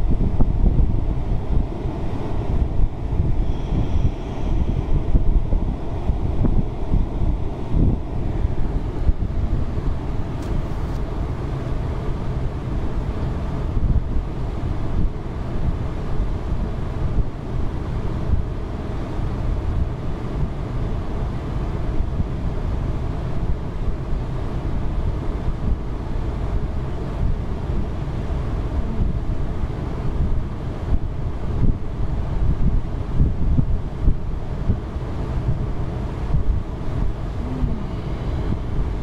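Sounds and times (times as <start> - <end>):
wind buffeting microphone: 0.0 - 18.7, 28.6 - 39.0.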